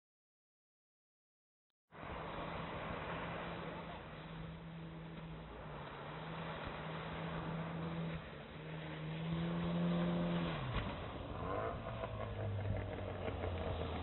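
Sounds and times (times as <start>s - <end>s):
surf washing on beach: 1.9s - 12.3s.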